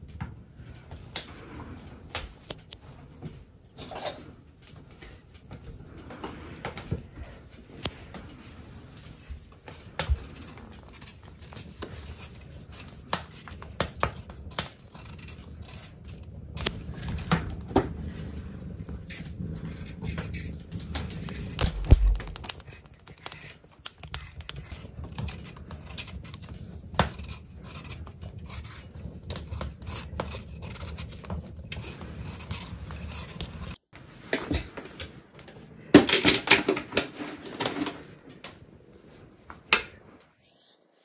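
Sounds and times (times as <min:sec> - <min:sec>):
knife scraping potato skin: 0:09.9 - 0:17.5, 0:19.0 - 0:33.8.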